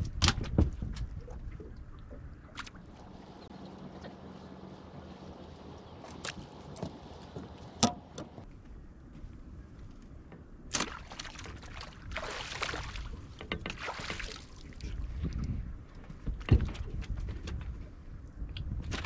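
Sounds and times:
water splashing: 10.7s - 15.1s.

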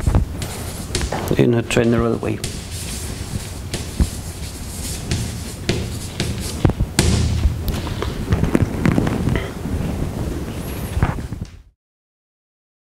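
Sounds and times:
knocks thuds and clatter: 0.0s - 9.3s
paper rustling: 0.0s - 9.3s
footsteps: 0.0s - 9.4s.

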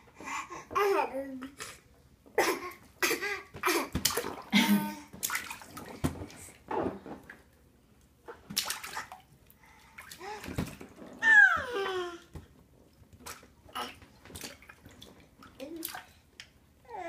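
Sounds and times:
bathwater splashing: 2.6s - 7.6s, 8.3s - 16.5s
baby squealing: 11.2s - 11.9s.

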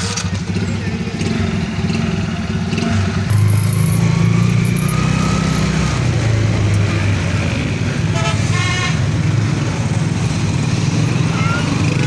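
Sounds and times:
rickshaw engine running: 0.0s - 12.0s
road noise: 0.0s - 12.0s
vehicle horn tooting: 8.1s - 9.1s.

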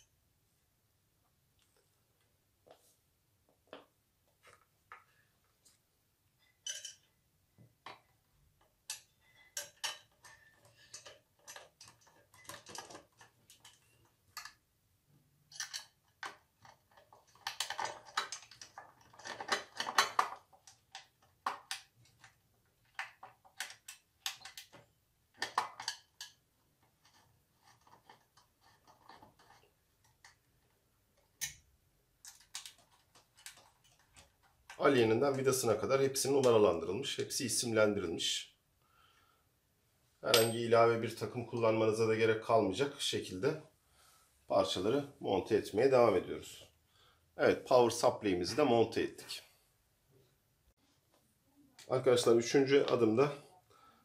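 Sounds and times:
metal clicks and clinks: 6.5s - 7.1s.

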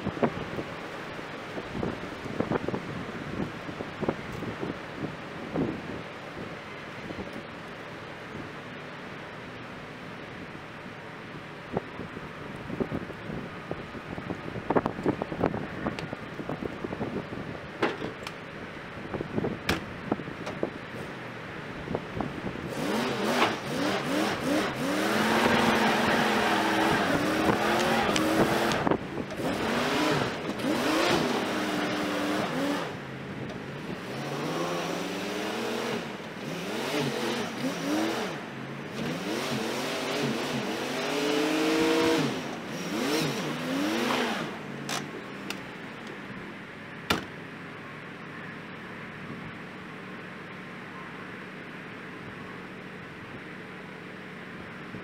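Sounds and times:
rush of noise: 0.0s - 53.6s
truck engine revving: 19.5s - 46.4s.

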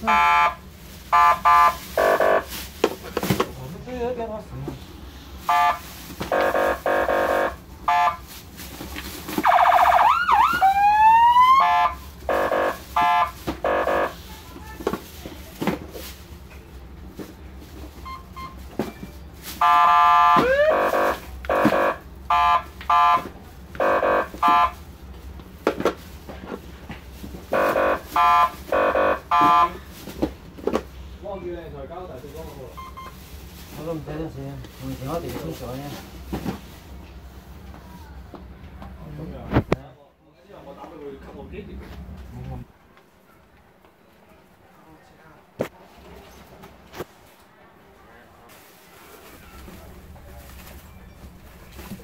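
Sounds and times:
rising siren sweeps: 9.5s - 11.9s, 20.3s - 21.2s.

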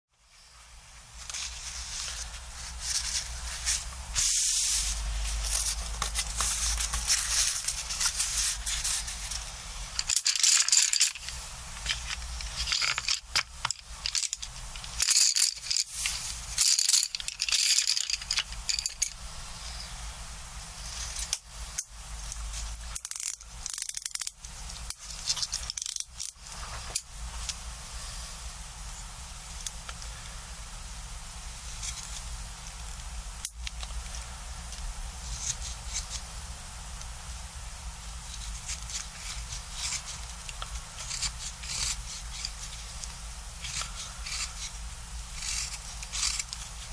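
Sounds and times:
wooden pencils clattering: 10.0s - 19.2s.

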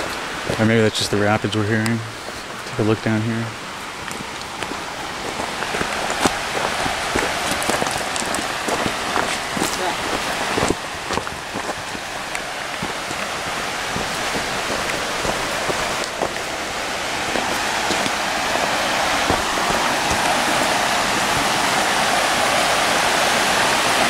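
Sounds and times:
river rapids rushing: 0.0s - 24.0s
footsteps on dirt trail: 4.0s - 22.9s.

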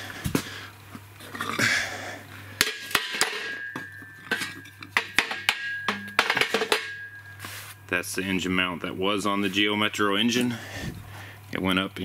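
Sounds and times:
metal piece ringing: 2.6s - 7.8s
metal parts clanking: 2.7s - 7.1s.

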